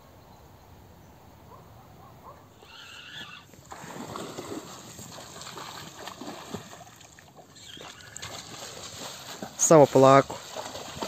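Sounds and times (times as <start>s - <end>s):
fish thrashing and splashing: 3.6s - 9.6s, 10.3s - 11.0s.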